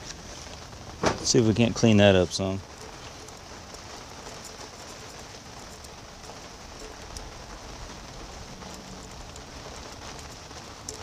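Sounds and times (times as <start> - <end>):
background hiss: 0.0 - 11.0
metal pick scraping ticks: 2.6 - 11.0.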